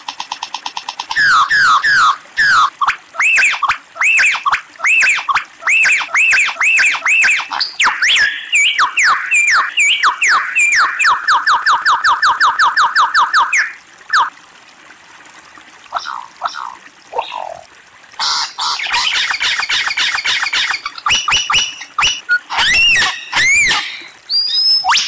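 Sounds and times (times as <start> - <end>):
lyrebird whistled calls: 1.1 - 14.3, 20.4 - 25.0.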